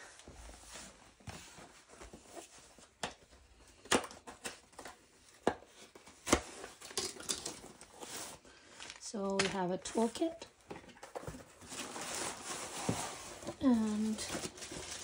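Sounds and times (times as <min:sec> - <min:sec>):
box rustling: 0:05.8 - 0:15.0.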